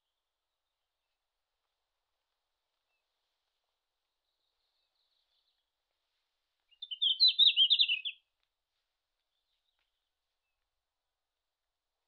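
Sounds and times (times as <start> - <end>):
bird singing high jumbled notes: 6.7 - 8.2.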